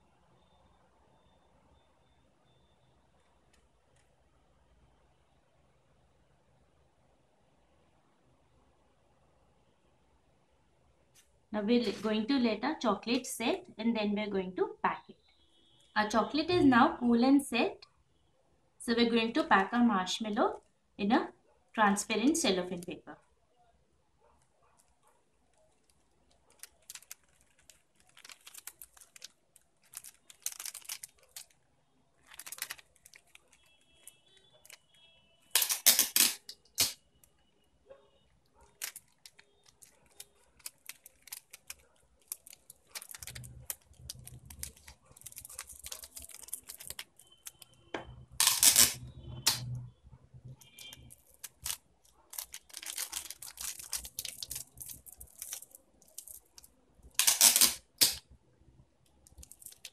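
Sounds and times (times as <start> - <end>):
cellophane wrapper crinkling: 24.8 - 37.4, 38.5 - 49.8, 50.6 - 58.2, 59.2 - 59.9.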